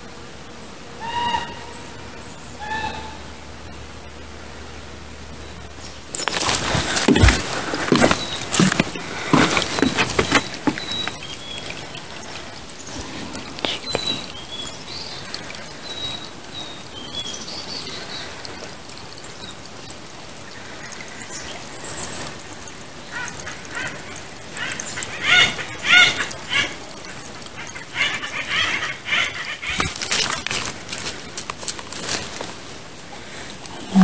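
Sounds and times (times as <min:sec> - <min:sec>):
creek trickling: 0:05.0 - 0:34.0
footsteps on a trail: 0:06.1 - 0:14.2
woodpeckers calling: 0:06.2 - 0:12.4, 0:24.6 - 0:26.8.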